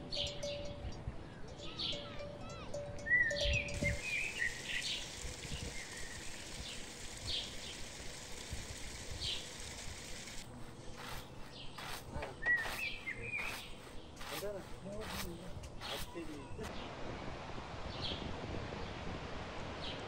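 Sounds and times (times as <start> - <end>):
steady outdoor hiss: 0.0 - 20.0
birds chirping and whistling: 0.1 - 16.7
scuffs and knocks: 10.4 - 16.5.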